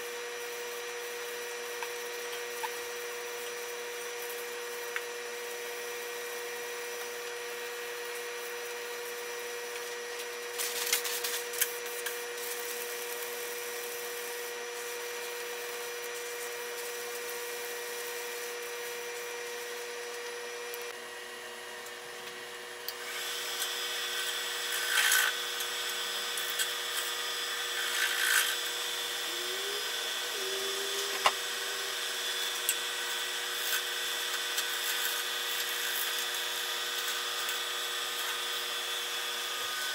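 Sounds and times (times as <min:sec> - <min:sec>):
paper towel rubbing spinning wood: 0:07.0 - 0:20.0
wood lathe motor hum: 0:22.3 - 0:39.9.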